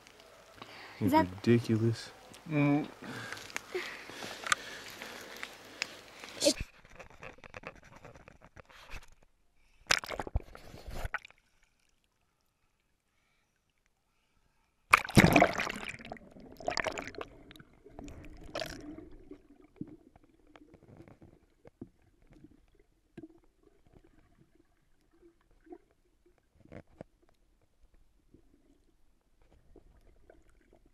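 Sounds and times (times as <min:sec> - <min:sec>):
faint gurgles and small knocks: 0:00.0 - 0:30.9
water splash: 0:09.9 - 0:11.4, 0:14.9 - 0:20.2.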